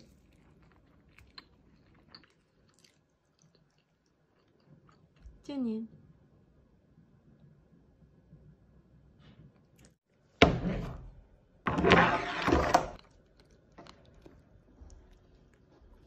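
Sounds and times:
crab shell scraping on cutting board: 0:11.7 - 0:13.0.

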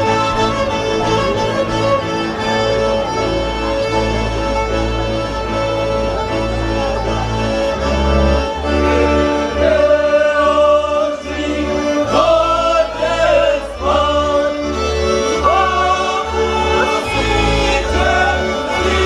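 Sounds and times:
voices singing: 0:08.8 - 0:19.0.

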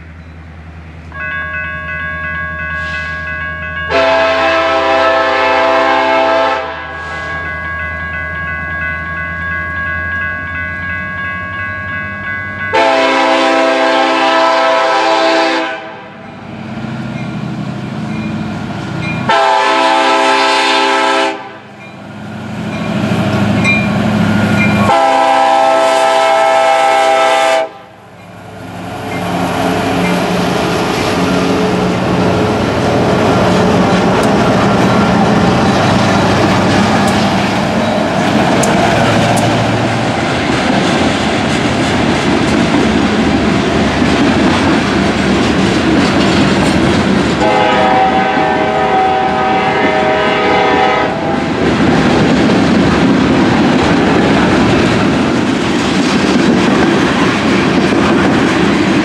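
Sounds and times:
crossing warning bell ringing: 0:00.0 - 0:38.8
locomotive air horn blasts: 0:03.9 - 0:07.4, 0:12.7 - 0:16.2, 0:19.3 - 0:21.7, 0:24.8 - 0:27.9, 0:47.4 - 0:51.4.

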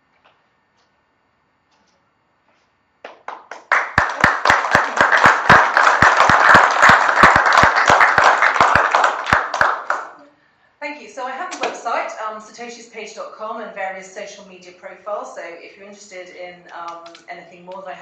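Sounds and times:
audience applauding: 0:03.1 - 0:10.2.

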